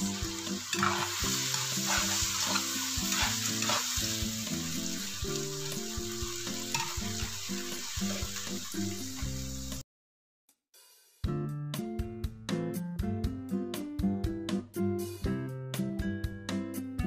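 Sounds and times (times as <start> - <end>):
food sizzling in a wok: 0.0 - 9.8
spatula scraping wok: 0.0 - 9.8.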